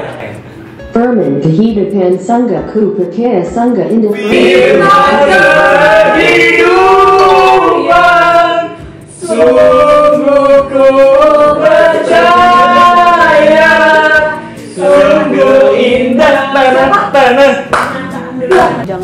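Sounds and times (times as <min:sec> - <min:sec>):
people singing a hymn a cappella: 0:04.1 - 0:18.9.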